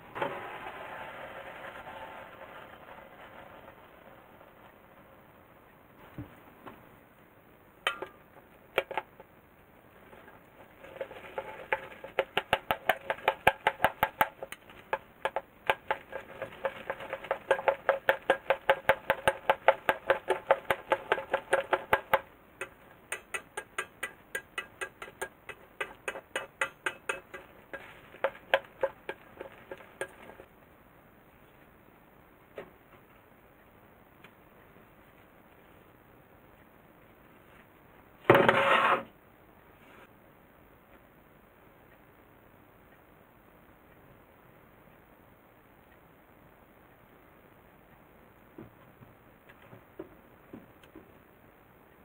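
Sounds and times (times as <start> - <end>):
chopsticks clicking on steel bowl: 17.5 - 30.5.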